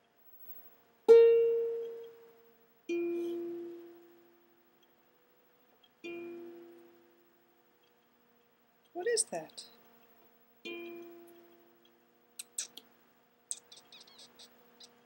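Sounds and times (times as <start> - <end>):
ukulele notes plucked: 1.1 - 4.5, 6.0 - 7.2, 10.6 - 11.8.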